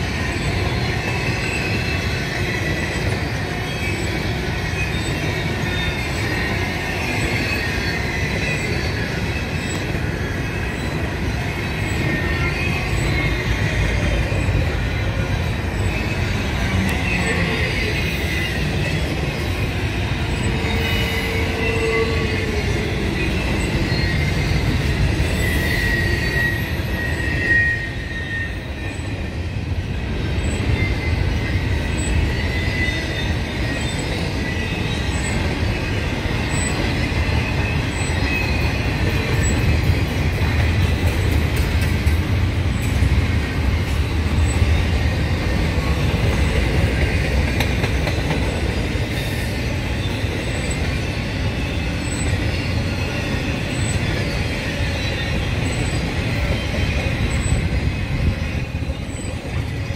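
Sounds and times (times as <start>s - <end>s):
high wheel squeal: 0.0s - 59.9s
train wheels rumbling on rail: 0.0s - 59.9s.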